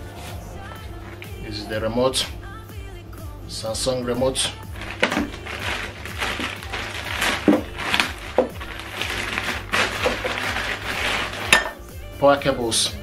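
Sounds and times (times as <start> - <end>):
plastic bag crinkling: 4.6 - 11.7.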